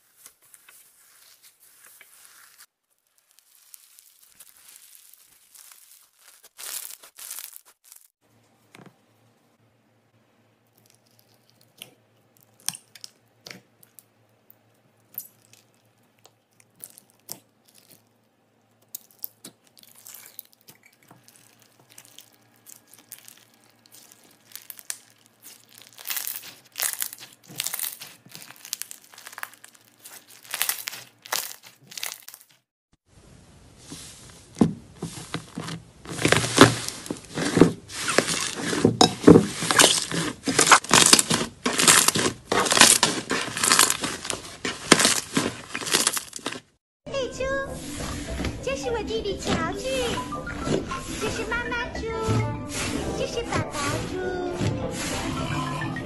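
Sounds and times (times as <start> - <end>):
slime squishing: 0.0 - 8.1, 15.0 - 32.6, 33.8 - 46.8
slime with beads crackling: 0.0 - 8.2, 16.6 - 18.2, 18.8 - 32.7, 33.8 - 46.8.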